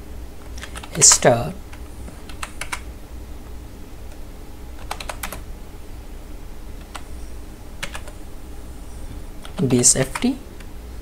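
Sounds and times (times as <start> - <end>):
steady low hum: 0.0 - 11.0
keyboard typing: 0.6 - 2.9, 4.8 - 5.4, 6.8 - 7.1, 7.8 - 8.2, 9.4 - 10.4.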